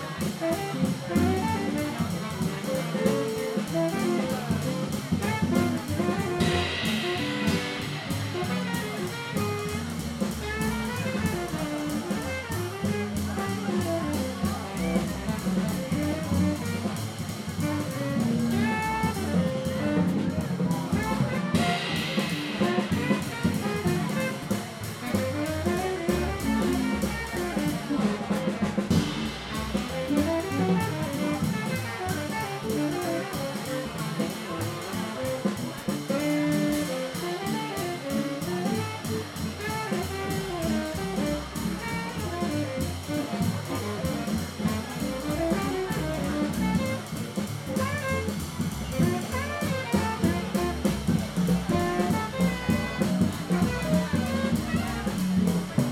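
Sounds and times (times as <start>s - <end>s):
drum kit keeping time: 0.0s - 41.3s, 41.9s - 43.3s, 44.5s - 48.2s, 49.9s - 53.7s, 55.2s - 55.6s
saxophone melody: 0.4s - 2.0s, 3.6s - 4.7s, 5.4s - 9.2s, 17.9s - 20.0s, 21.2s - 24.4s, 25.0s - 29.2s.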